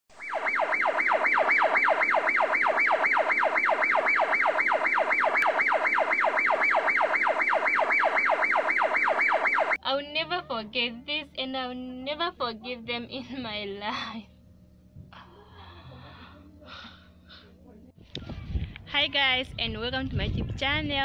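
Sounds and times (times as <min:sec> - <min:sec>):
police siren yelping: 0:00.1 - 0:09.8.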